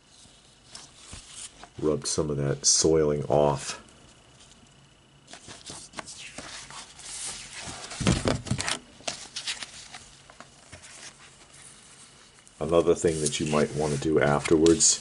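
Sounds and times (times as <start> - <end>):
paper rustling: 5.3 - 15.0.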